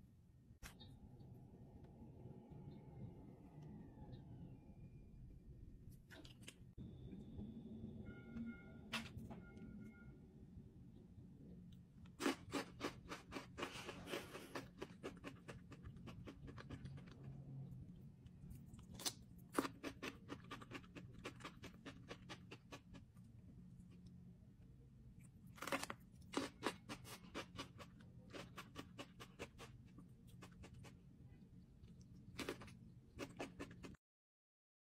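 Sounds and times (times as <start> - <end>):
chewing crunchy food: 12.0 - 24.1, 25.2 - 34.0.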